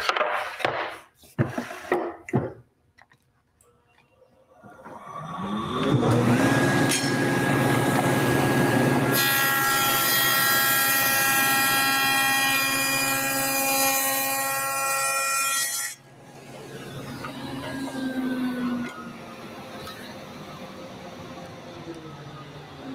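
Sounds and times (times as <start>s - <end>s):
saw cutting plywood: 4.9s - 16.0s
table saw motor running: 5.0s - 12.0s.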